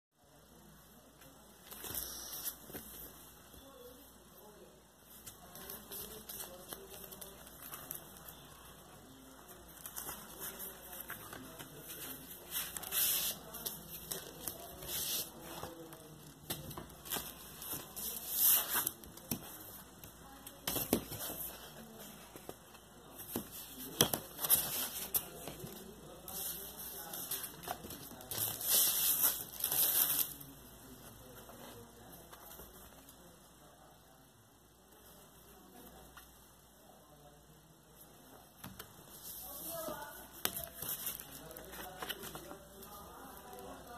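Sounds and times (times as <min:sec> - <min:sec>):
cardboard and paper rustling: 0:05.1 - 0:30.4, 0:39.1 - 0:43.9.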